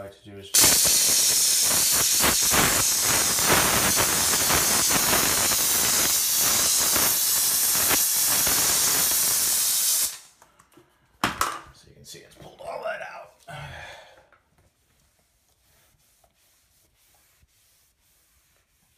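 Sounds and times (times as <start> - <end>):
steam cleaner hissing: 0.6 - 10.4
brush scrubbing crackle: 14.6 - 18.9.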